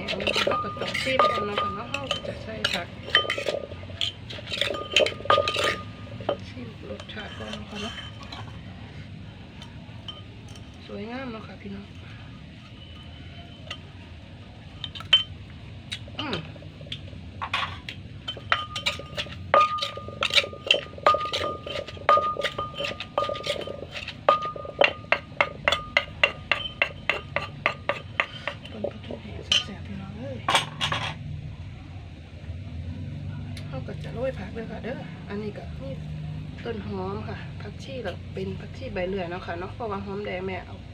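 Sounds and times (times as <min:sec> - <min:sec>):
spoon and pestle clinking in mortar: 0:00.0 - 0:08.7, 0:09.6 - 0:10.9, 0:12.6 - 0:13.9, 0:14.8 - 0:16.0, 0:16.9 - 0:29.8.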